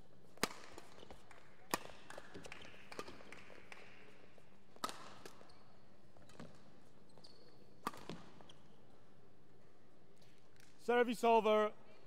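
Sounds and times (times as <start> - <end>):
rackets hitting shuttlecock: 0.4 - 5.5, 7.8 - 8.5
shoes squeaking on court floor: 4.8 - 9.3.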